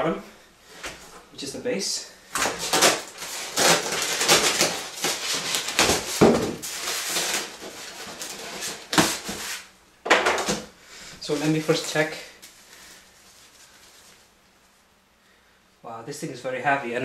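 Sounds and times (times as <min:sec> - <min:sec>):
plastic wrap and styrofoam crinkling: 0:02.3 - 0:14.4.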